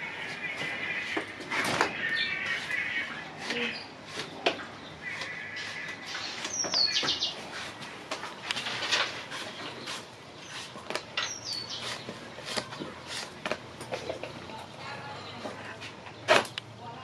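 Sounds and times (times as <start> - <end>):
high chirping call: 4.9 - 7.4.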